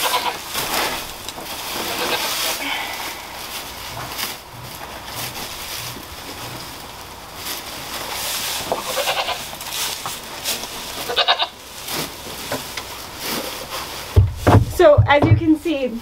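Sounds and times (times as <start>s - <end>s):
goat bleating: 0.0s - 0.5s, 1.9s - 2.4s, 8.8s - 9.6s, 11.0s - 11.6s
dry hay rustling and crackling: 0.0s - 16.0s.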